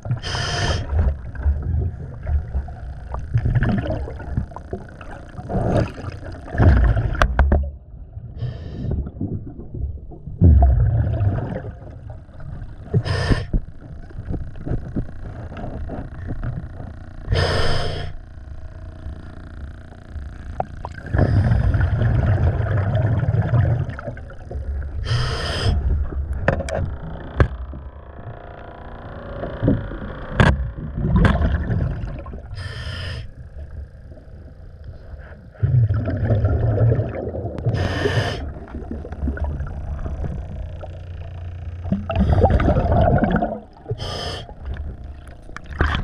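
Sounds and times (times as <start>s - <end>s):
exhaled bubbles rumbling underwater: 0.0s - 46.0s
hissing regulator breaths: 0.1s - 1.0s, 12.9s - 13.6s, 17.3s - 18.2s, 25.0s - 26.0s, 32.5s - 33.4s, 37.7s - 38.6s, 43.9s - 44.8s.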